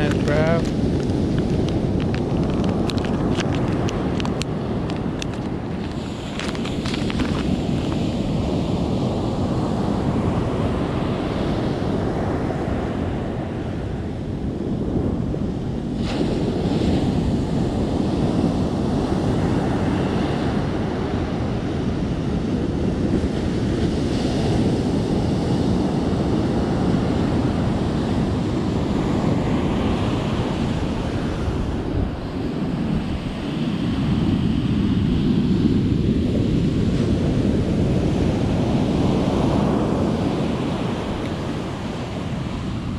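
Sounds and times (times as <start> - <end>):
surf breaking on beach: 0.0 - 13.8
wind buffeting microphone: 0.0 - 42.9.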